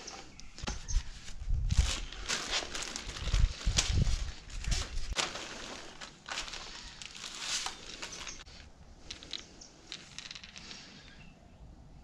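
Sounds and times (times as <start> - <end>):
plastic bag crinkling: 1.7 - 10.4
plastic parts clicking: 9.0 - 11.2.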